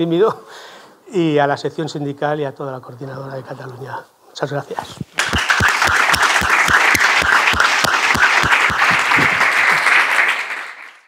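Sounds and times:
audience applauding: 0:05.2 - 0:11.0
close steady hand clapping: 0:05.2 - 0:11.0.

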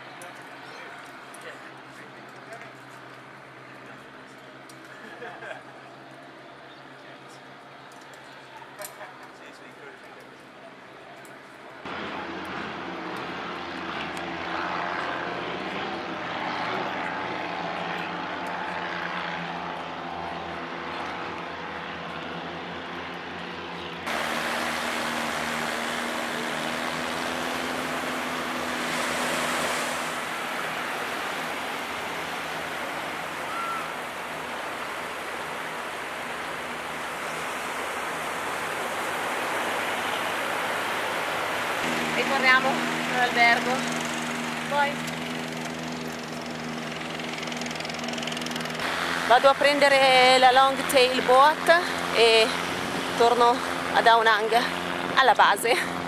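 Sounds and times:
engine drone: 0:11.8 - 0:56.0
low engine hum: 0:11.8 - 0:56.0
steady rushing noise: 0:24.0 - 0:56.0.

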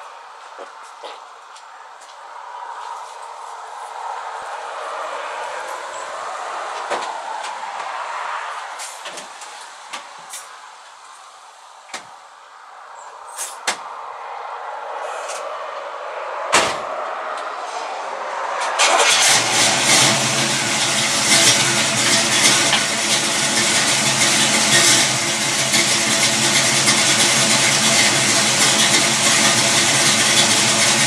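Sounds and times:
car engine starting and running: 0:14.8 - 0:31.0.

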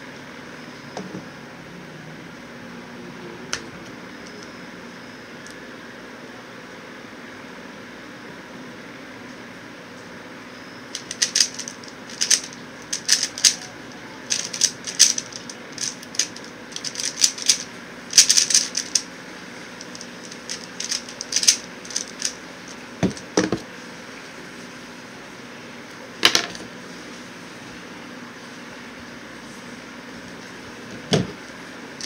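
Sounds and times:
puzzle cube clicking: 0:11.0 - 0:13.6, 0:14.3 - 0:19.0, 0:19.8 - 0:22.4.

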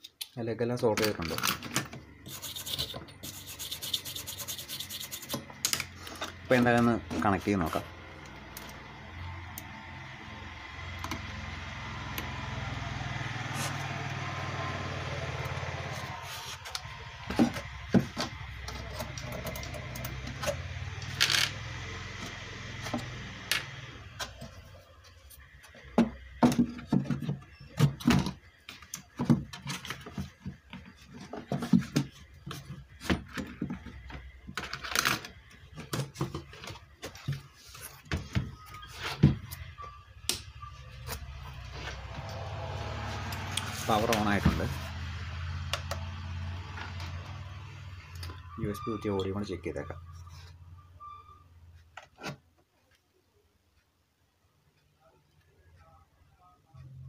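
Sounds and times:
knocks and clatter of handled parts: 0:25.7 - 0:39.6.

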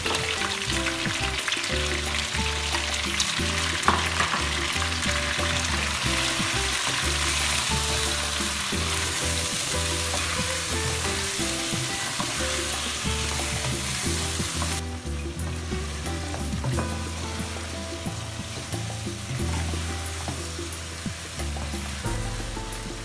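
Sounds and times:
chicken sizzling in hot oil: 0:00.0 - 0:23.0.

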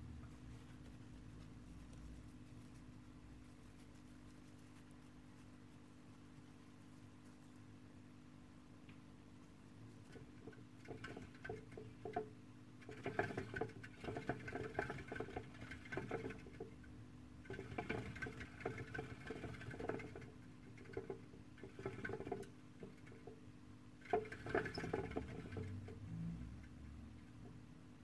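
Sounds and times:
exercise wheel clicking and rattling: 0:10.1 - 0:16.8, 0:17.4 - 0:23.4, 0:24.0 - 0:26.0.

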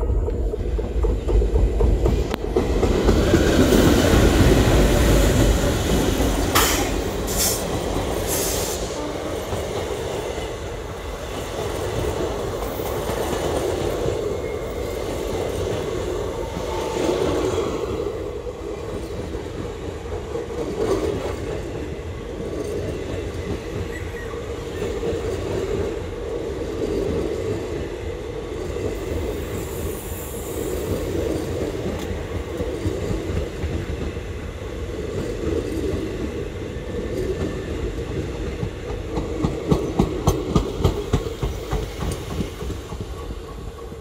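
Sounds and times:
diesel locomotives passing: 0:00.0 - 0:44.0
train wheels clickety-clack: 0:00.0 - 0:44.0.

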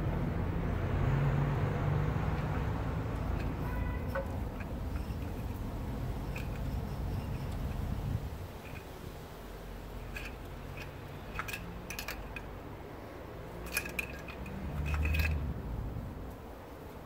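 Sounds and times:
wire scraping inside metal tube: 0:02.4 - 0:09.0, 0:09.9 - 0:12.5.

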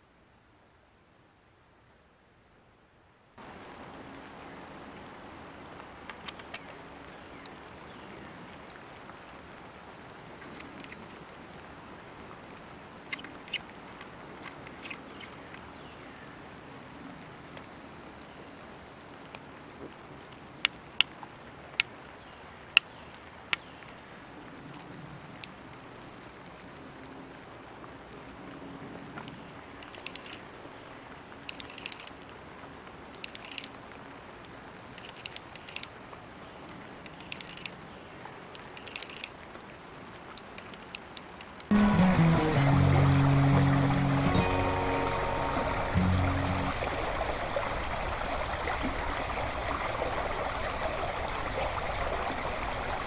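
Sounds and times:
fly reel ratchet clicking: 0:37.2 - 0:37.7, 0:38.8 - 0:39.3.

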